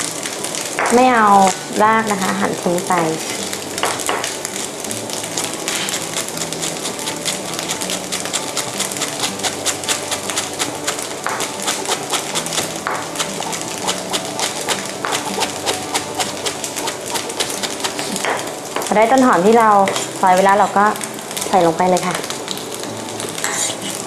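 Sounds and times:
knife chopping on wooden board: 6.7s - 18.4s.

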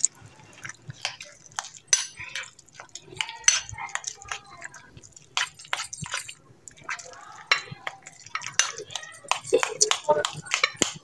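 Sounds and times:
spoon scraping glass bowl: 1.0s - 11.0s.

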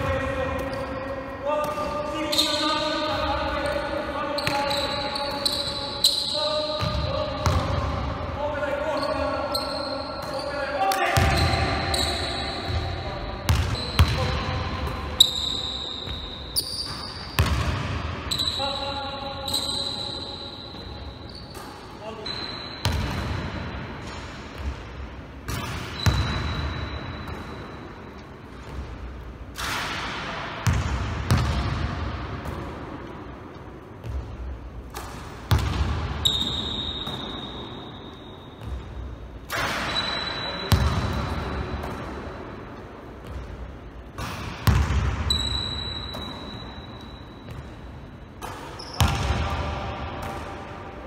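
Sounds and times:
basketball bouncing in a hall: 0.0s - 51.0s
basketball bouncing on wooden floor: 44.6s - 45.0s.

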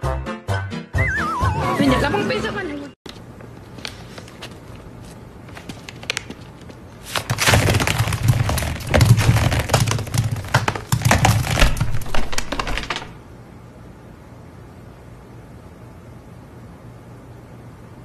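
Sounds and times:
lemons bouncing on hard floor: 7.2s - 13.2s.

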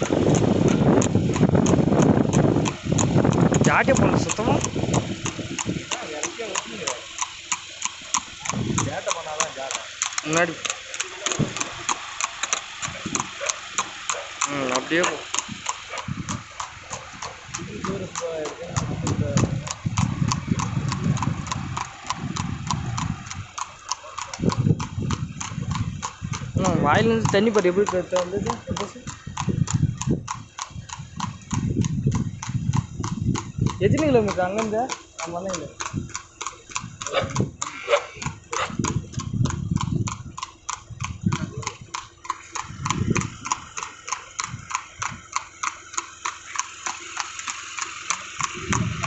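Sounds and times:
cart rumbling: 0.0s - 49.0s
hooves clip-clopping on asphalt: 0.0s - 49.0s
low rumble: 15.4s - 27.1s, 28.5s - 34.0s, 38.3s - 43.8s.

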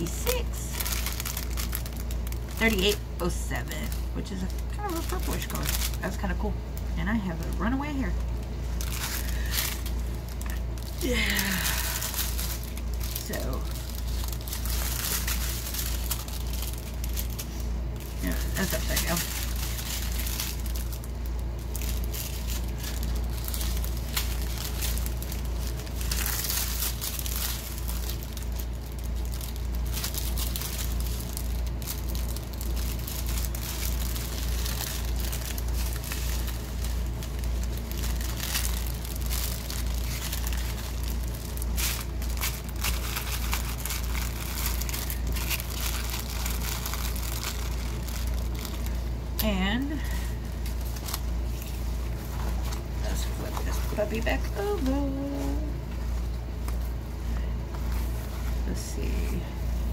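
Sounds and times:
plastic bags crinkling: 0.0s - 59.9s
steady low hum: 0.0s - 59.9s.

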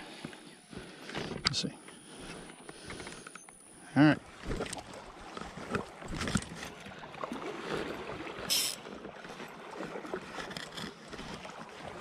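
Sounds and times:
creek water sloshing: 0.0s - 12.0s
short sharp hiss: 8.5s - 8.8s.

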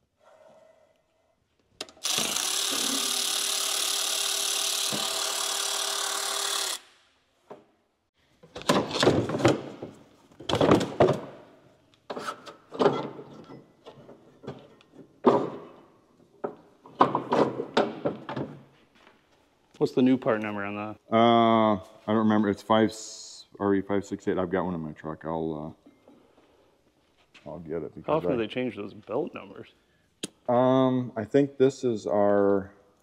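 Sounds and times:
cordless power tool running: 1.9s - 6.9s
metal clunks and scrapes: 12.1s - 15.8s.

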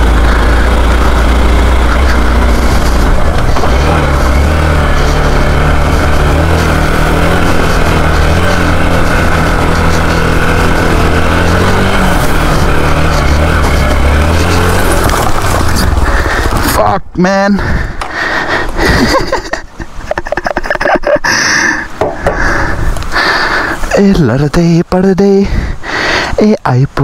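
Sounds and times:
motorcycle engine running: 0.0s - 19.6s.

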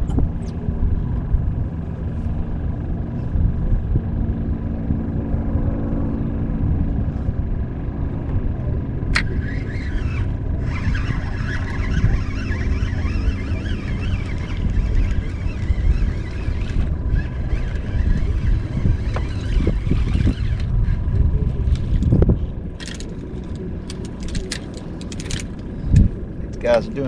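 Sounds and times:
motor rumbling: 0.0s - 27.0s
sharp click: 9.2s - 9.4s.

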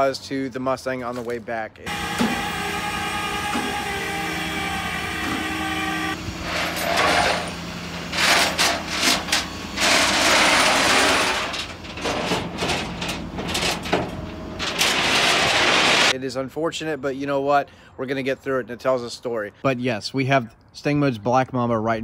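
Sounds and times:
steady pitched hum: 1.9s - 16.1s.

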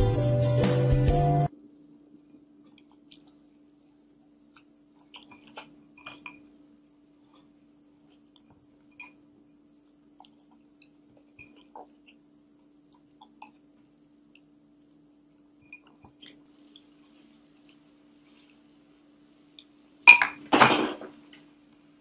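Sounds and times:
clatter of hard objects: 20.2s - 21.2s.

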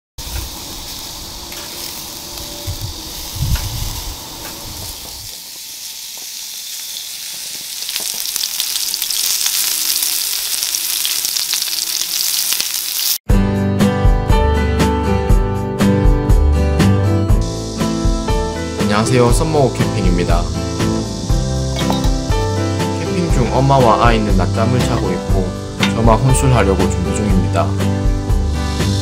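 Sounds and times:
meat sizzling on a grill: 0.2s - 13.2s, 17.4s - 29.0s
music: 13.3s - 29.0s.

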